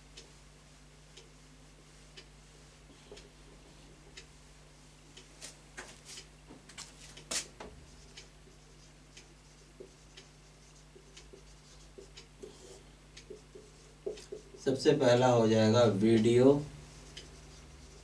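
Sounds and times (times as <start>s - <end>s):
low electrical hum: 0.0s - 18.0s
marker writing on whiteboard: 7.1s - 14.8s, 16.9s - 18.0s.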